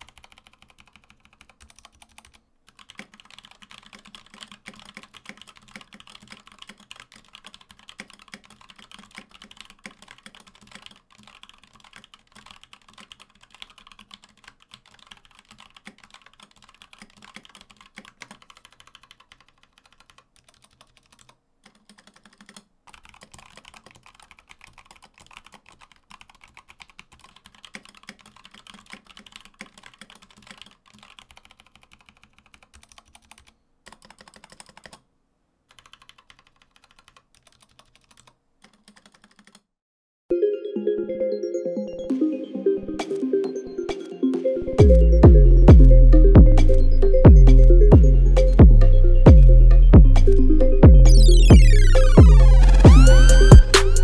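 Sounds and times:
mechanical keyboard typing: 0.0 - 35.0, 35.7 - 39.7.

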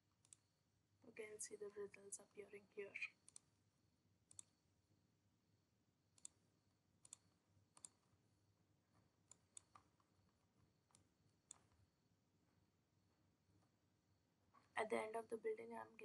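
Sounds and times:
computer mouse clicks: 0.2 - 0.5, 3.1 - 3.5, 4.3 - 4.6, 6.2 - 6.4, 7.0 - 8.1, 9.2 - 10.1, 10.9 - 11.8.

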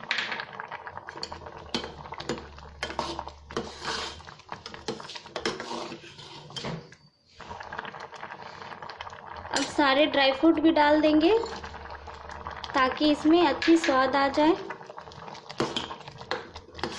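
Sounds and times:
spoon scraping metal pot: 1.2 - 7.0, 11.3 - 11.7, 15.6 - 16.9.

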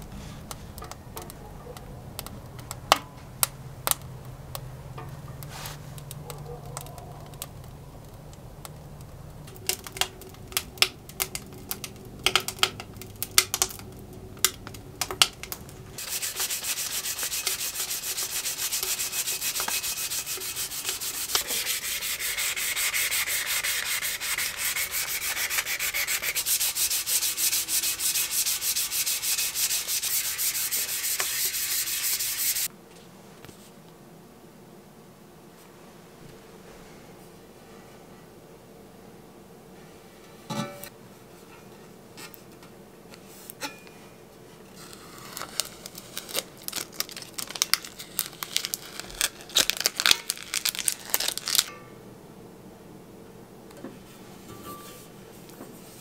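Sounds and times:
wood stove fire crackling: 0.0 - 32.8, 42.2 - 52.0
hand sanding steel tube: 16.0 - 32.7.

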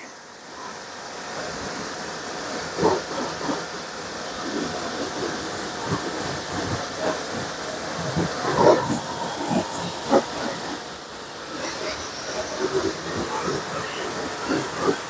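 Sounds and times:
pressure washer spray hiss: 3.1 - 15.0.

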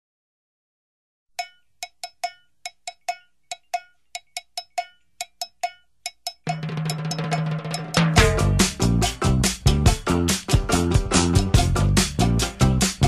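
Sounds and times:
sharp percussion hits: 6.4 - 13.0
band with drums and bass: 6.6 - 13.0.

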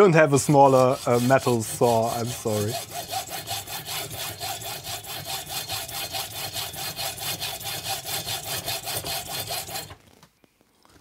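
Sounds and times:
hacksaw cutting metal: 0.0 - 10.0.

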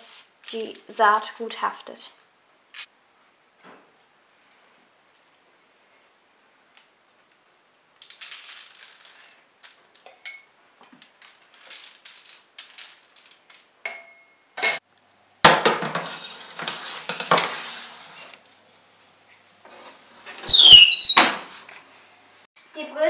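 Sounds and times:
seeds pattering on baking tray: 8.0 - 10.0, 10.9 - 13.7
metal tray scraping and clattering: 15.5 - 18.5.

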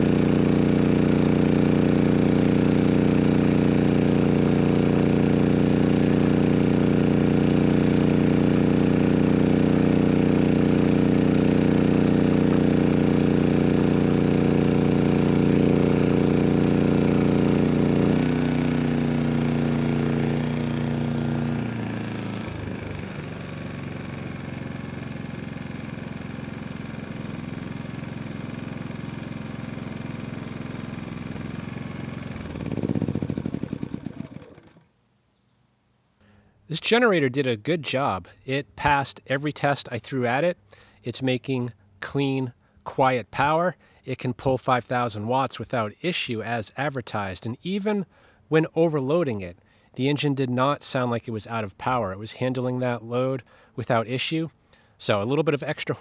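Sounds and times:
generator engine running: 0.0 - 35.0.

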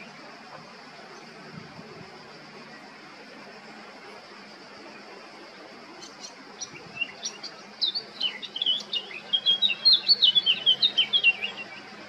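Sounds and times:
bird singing warbling: 6.0 - 12.0.

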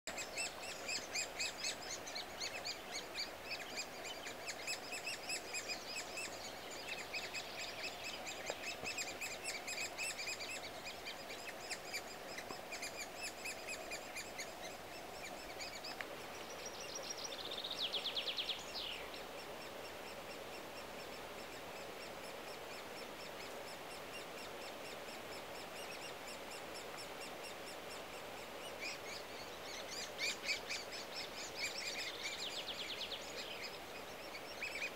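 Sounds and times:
nestlings begging chirps: 0.1 - 34.9.

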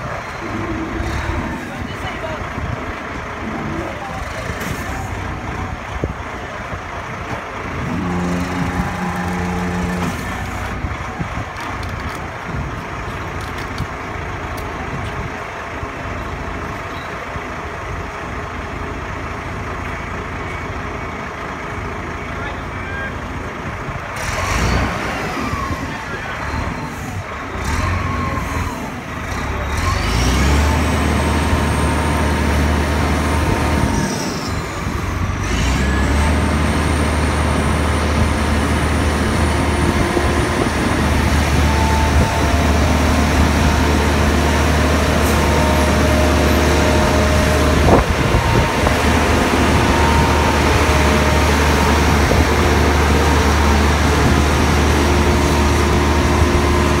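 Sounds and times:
diesel engine drone under load: 0.0 - 57.0
crane boom whine: 3.5 - 12.8, 24.8 - 57.0.

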